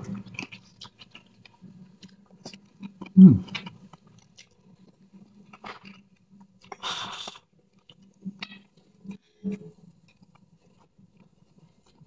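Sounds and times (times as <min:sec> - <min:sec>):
person chewing food: 0:00.1 - 0:08.2.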